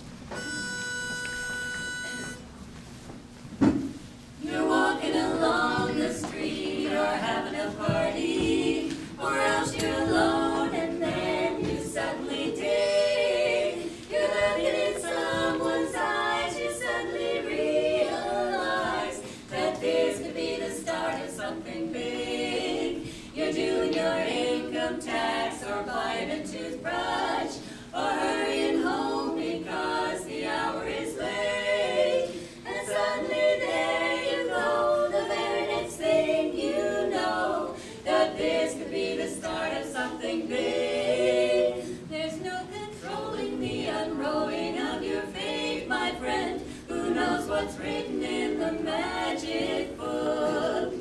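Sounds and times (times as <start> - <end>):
knock: 3.6 - 4.0
women singing in harmony: 4.4 - 51.0.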